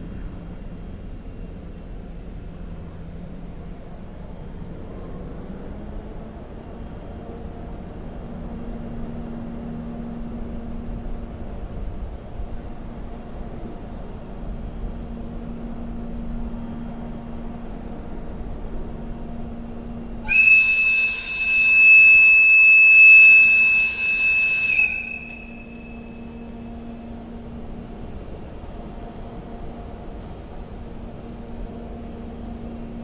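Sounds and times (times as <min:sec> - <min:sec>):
locomotive low hum: 0:00.0 - 0:33.0
locomotive air whistle blast: 0:20.2 - 0:26.7.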